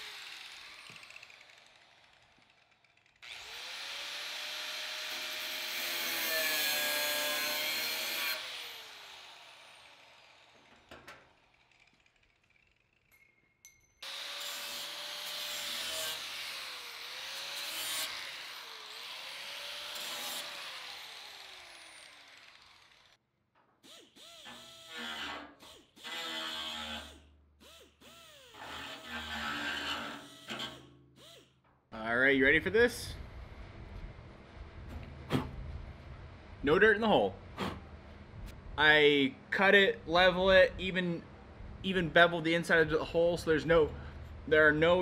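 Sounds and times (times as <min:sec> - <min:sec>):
angle grinder grinding steel: 0:00.0 - 0:13.2, 0:14.0 - 0:23.2, 0:23.8 - 0:31.6.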